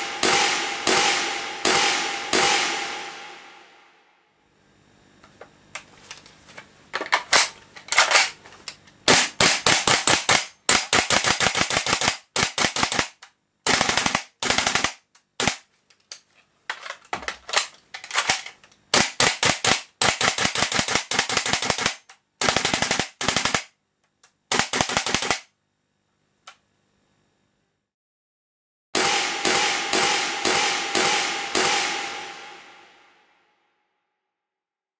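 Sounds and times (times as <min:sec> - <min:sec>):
airsoft rifle firing: 0:00.0 - 0:03.5, 0:09.1 - 0:15.6, 0:17.5 - 0:23.7, 0:24.5 - 0:25.5, 0:29.0 - 0:33.0.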